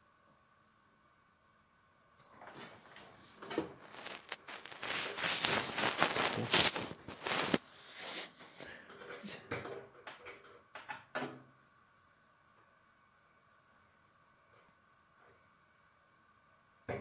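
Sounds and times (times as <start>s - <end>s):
rustling and scraping handling noise: 2.3s - 7.6s.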